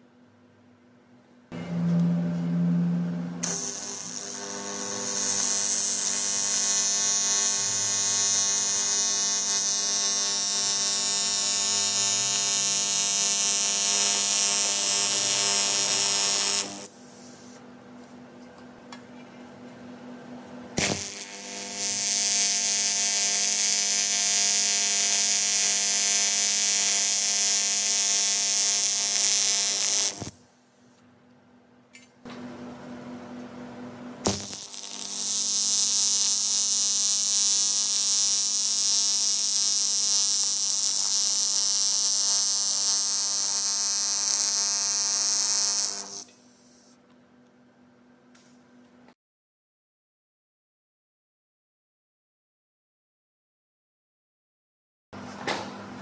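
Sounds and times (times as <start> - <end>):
welding arc buzzing: 1.6 - 17.6, 20.8 - 30.6, 34.2 - 47.0
welder click: 3.4 - 4.4, 20.8 - 22.2, 28.9 - 30.4, 34.2 - 35.4.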